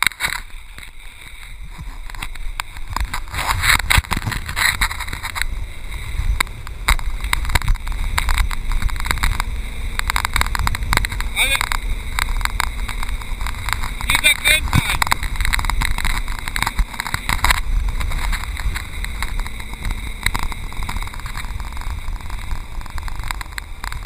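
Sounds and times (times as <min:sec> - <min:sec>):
water rushing and splashing: 0:00.0 - 0:24.0
wind rumbling on microphone: 0:00.0 - 0:24.0.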